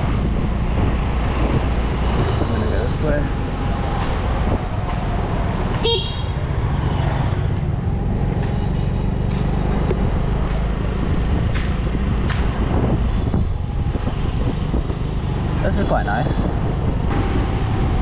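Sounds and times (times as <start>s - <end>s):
wind on microphone: 0.0s - 5.8s, 9.6s - 18.0s.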